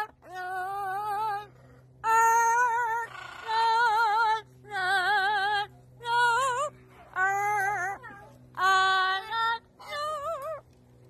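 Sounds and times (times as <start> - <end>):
parrot singing: 2.0 - 10.5.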